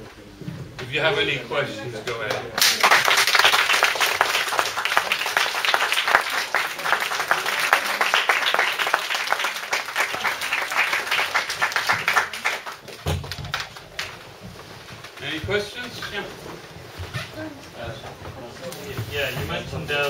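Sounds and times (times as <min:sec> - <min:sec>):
audience applauding: 0:02.1 - 0:14.3.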